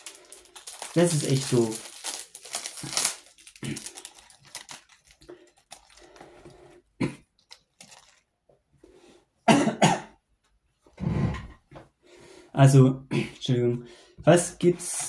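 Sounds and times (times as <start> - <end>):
packaging rustling and crinkling: 0.0 - 6.6, 7.4 - 8.3
person coughing: 7.0 - 7.3, 9.4 - 10.2.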